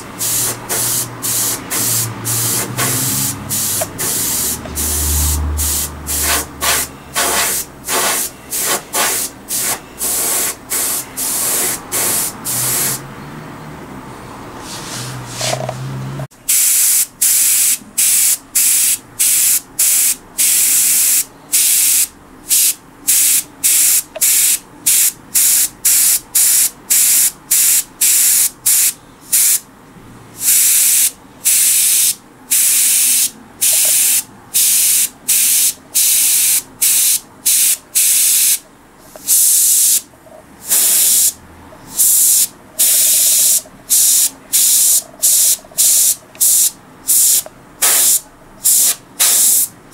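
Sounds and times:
airbrush spraying hiss: 0.0 - 13.0, 16.5 - 29.6, 30.4 - 38.6, 39.2 - 40.0, 40.6 - 49.7.

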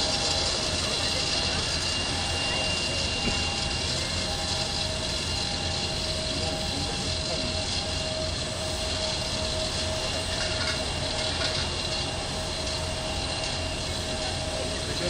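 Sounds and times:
jet engines whining: 0.0 - 15.0.

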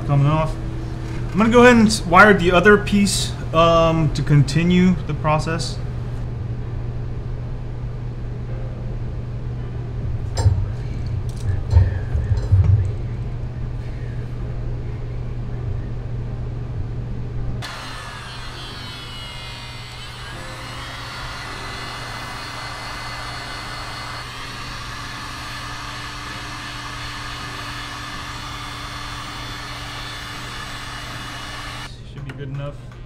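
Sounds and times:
heat gun fan blowing: 0.0 - 6.6, 9.5 - 16.4, 17.6 - 32.4
low steady hum: 0.0 - 33.0.

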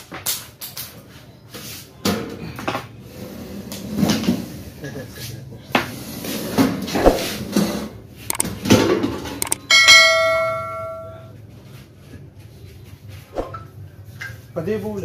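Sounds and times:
metal piece ringing like a bell: 9.5 - 11.3.

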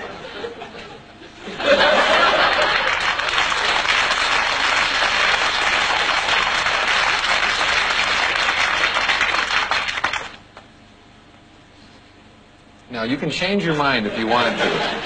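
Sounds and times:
audience applauding: 1.9 - 10.4.

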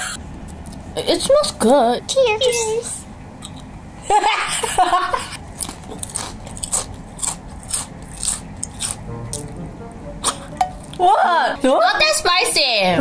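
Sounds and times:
crunching potato chips: 5.2 - 9.6.

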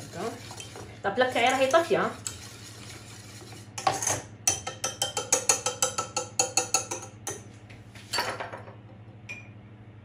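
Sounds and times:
whisk clicking against saucepan: 4.5 - 7.4.

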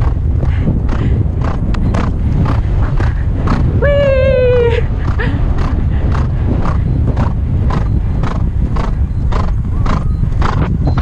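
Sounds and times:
horse breathing: 0.0 - 3.8, 4.8 - 10.8
wind rumble on microphone: 0.0 - 11.0
horse hoofbeats on grass: 5.0 - 11.0.

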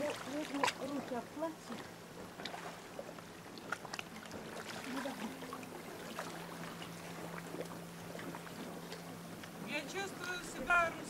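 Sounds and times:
water splashing and dripping: 0.0 - 2.8
steady low hum: 0.0 - 11.0
water lapping at rocks: 0.0 - 11.0.

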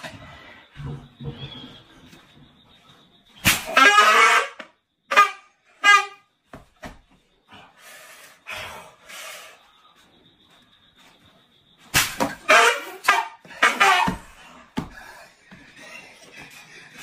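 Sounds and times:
party horn blasts: 3.5 - 6.3, 12.4 - 14.3.

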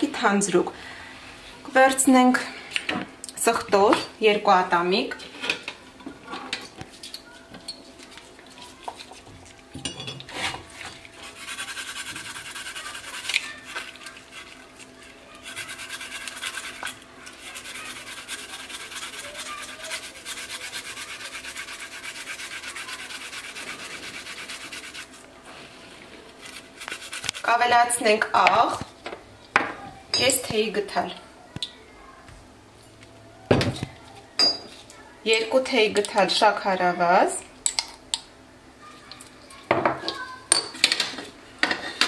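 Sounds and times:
garlic grated on metal grater: 11.2 - 25.2, 26.4 - 27.6.

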